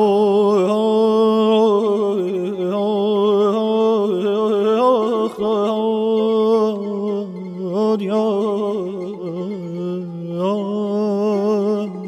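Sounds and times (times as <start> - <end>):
ornamented sung note: 0.0 - 12.0.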